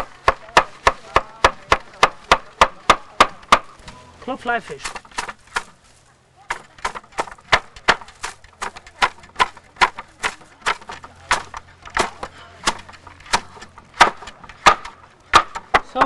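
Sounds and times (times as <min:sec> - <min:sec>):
wooden flax brake clacking: 0:06.5 - 0:16.0.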